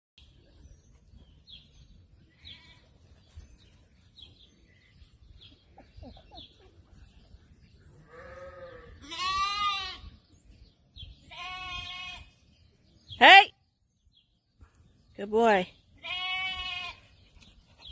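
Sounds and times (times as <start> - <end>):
sheep bleating: 8.0 - 10.0, 11.3 - 12.3, 16.0 - 17.0.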